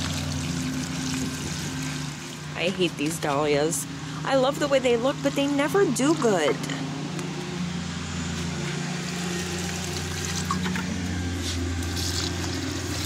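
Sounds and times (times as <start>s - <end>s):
water pouring onto plants: 0.0s - 3.3s, 9.1s - 10.7s, 11.4s - 13.0s
lawn mower engine running: 0.0s - 13.0s.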